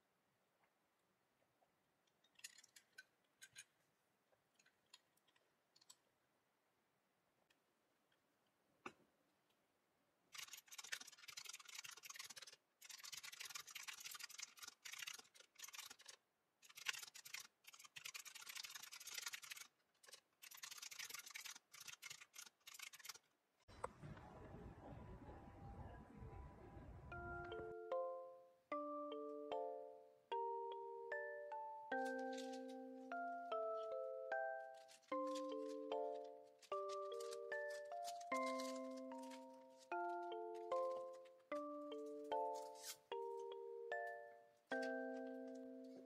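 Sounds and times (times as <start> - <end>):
keyboard typing clatter: 34.8 - 41.1.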